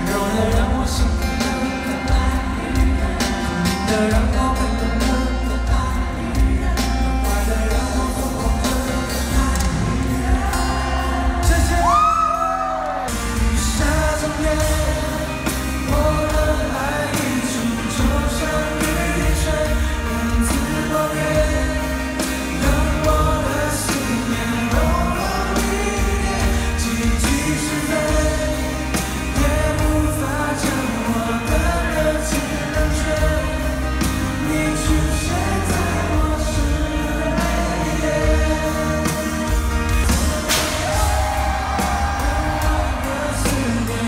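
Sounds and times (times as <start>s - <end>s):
live pop concert music: 0.0s - 44.0s.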